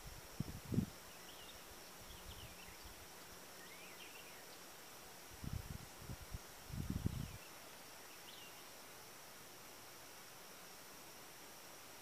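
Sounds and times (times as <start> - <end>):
high insect hum: 0.0 - 12.0
faint bird chirps: 1.0 - 4.8, 6.9 - 8.8.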